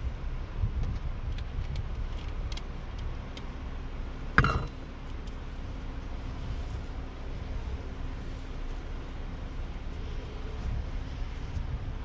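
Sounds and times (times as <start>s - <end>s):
low wind rumble: 0.0s - 12.0s
faint small clicks: 0.8s - 3.5s
bottle knocking into metal holder: 4.4s - 4.7s.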